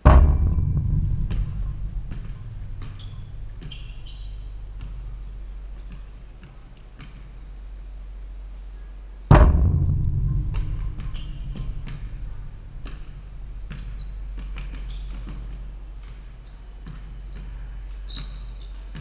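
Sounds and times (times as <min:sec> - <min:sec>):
ball thudding on backboard: 0:00.0 - 0:07.4
backboard ringing rumble: 0:00.0 - 0:08.4, 0:09.3 - 0:16.0
sneaker squeaks: 0:02.2 - 0:08.1, 0:13.7 - 0:19.0
basketball dribbling: 0:13.7 - 0:18.7.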